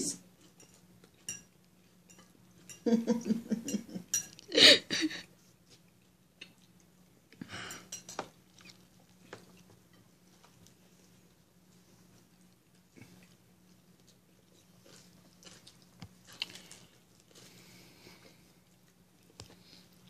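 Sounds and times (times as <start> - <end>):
woman laughing: 2.8 - 5.3.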